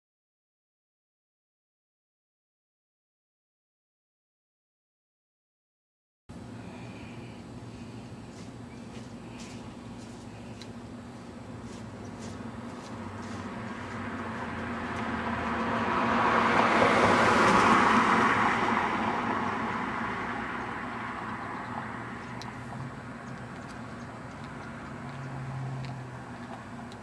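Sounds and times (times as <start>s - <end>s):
lower engine noise: 6.3s - 27.0s
car driving past: 13.0s - 23.0s, 24.4s - 26.6s.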